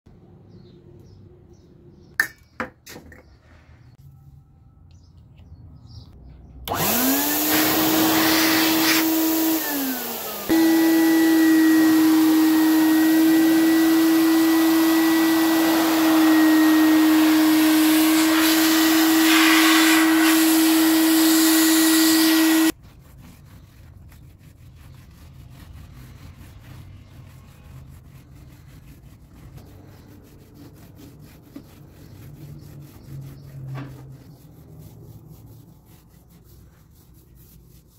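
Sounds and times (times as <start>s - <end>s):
handheld vacuum cleaner whining: 6.7s - 22.8s
faint rubbing and handling: 22.7s - 37.9s.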